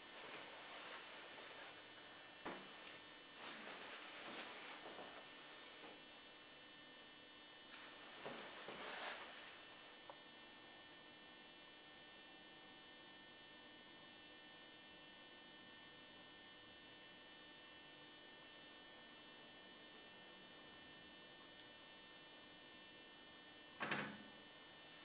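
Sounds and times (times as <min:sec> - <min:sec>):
faint electrical hum: 0:00.0 - 0:25.0.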